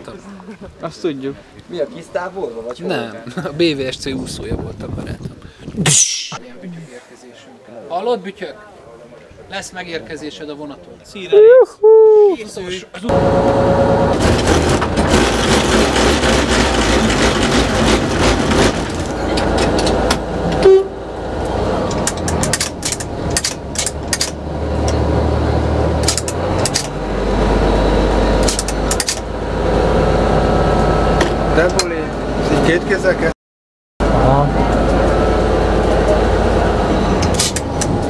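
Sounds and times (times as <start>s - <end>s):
train engine drone: 13.1s - 33.3s, 34.0s - 38.0s.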